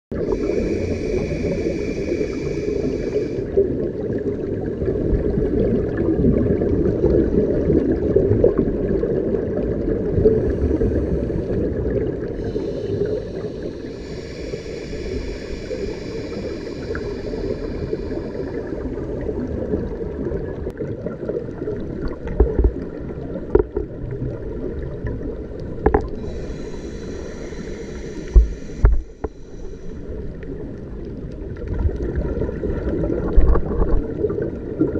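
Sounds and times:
exhaust bubbles rumbling underwater: 0:00.1 - 0:34.9
hissing breaths through regulator: 0:00.2 - 0:03.6, 0:10.2 - 0:19.1, 0:26.1 - 0:30.3.

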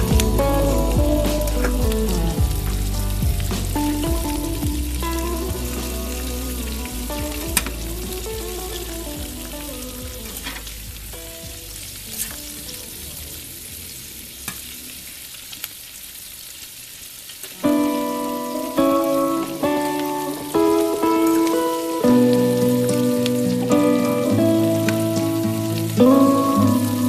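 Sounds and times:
loud music: 0:00.0 - 0:11.8
food sizzling in a skillet: 0:00.0 - 0:27.0.

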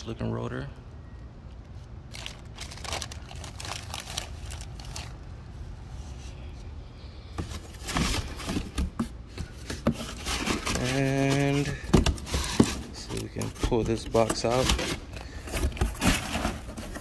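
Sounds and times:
plastic bag crinkling: 0:02.1 - 0:05.2
cardboard box handled: 0:07.4 - 0:17.0.

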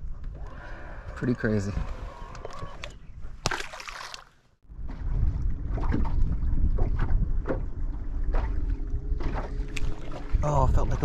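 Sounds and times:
low rumble: 0:04.6 - 0:11.0
wind buffeting microphone: 0:04.6 - 0:11.0.

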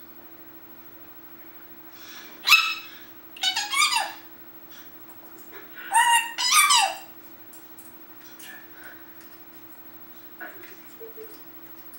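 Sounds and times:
parrot call: 0:02.4 - 0:04.3, 0:05.8 - 0:07.2
parrot chatter: 0:02.4 - 0:04.3, 0:05.7 - 0:07.2.

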